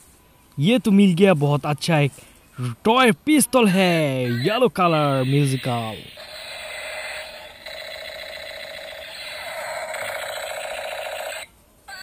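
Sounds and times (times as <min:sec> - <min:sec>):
toy pistol electronic pulsing: 0:05.2 - 0:12.0.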